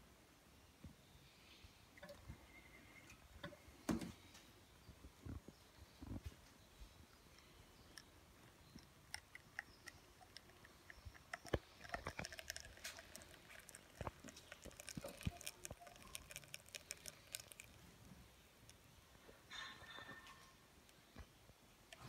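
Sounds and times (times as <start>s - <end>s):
espresso dripping into a cup: 8.7s - 17.8s.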